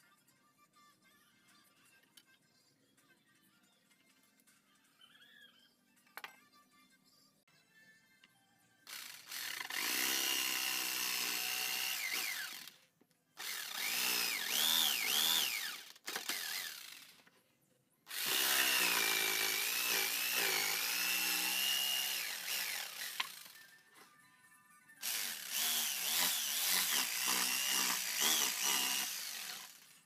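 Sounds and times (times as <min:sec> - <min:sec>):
jigsaw motor whine: 0:08.9 - 0:12.8, 0:13.4 - 0:17.2, 0:18.1 - 0:23.8, 0:25.0 - 0:30.0
blade rasping through wood: 0:25.1 - 0:29.8.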